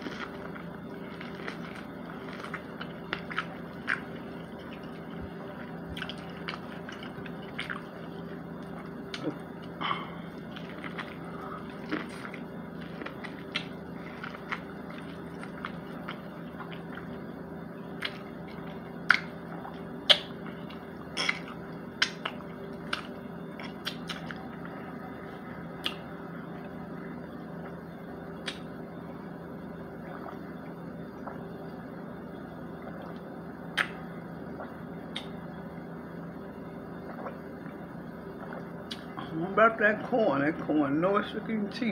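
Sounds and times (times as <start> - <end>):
chewing fried chicken: 0.0 - 26.1
steady low hum: 0.0 - 41.9
lip smacks: 13.1 - 16.9, 19.0 - 24.5, 25.7 - 26.1, 28.4 - 28.7, 33.0 - 35.4, 38.4 - 39.2.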